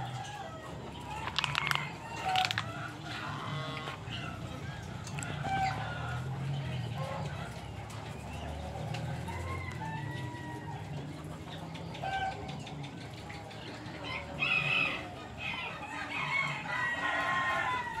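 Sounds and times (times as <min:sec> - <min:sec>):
farmyard fowl calling: 0:00.0 - 0:07.6, 0:13.7 - 0:18.0.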